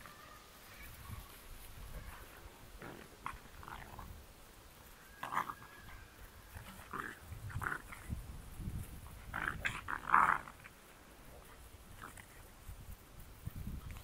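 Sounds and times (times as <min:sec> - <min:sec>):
puppies yipping and growling: 0:04.9 - 0:08.1.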